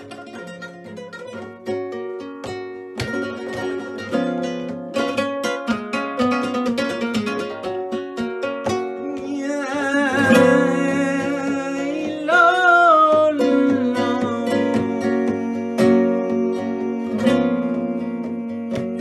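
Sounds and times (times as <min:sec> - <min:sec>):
flamenco guitar picking: 0:00.0 - 0:19.0
man singing flamenco: 0:00.0 - 0:19.0.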